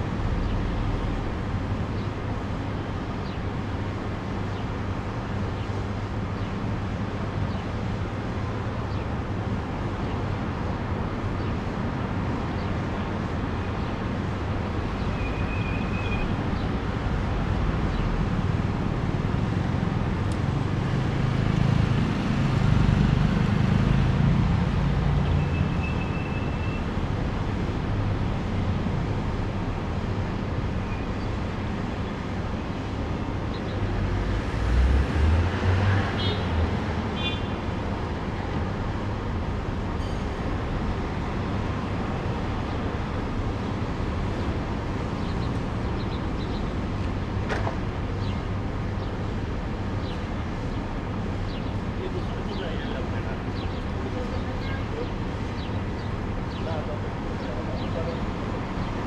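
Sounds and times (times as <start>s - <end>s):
cars passing: 16.3s - 26.1s, 31.4s - 59.0s.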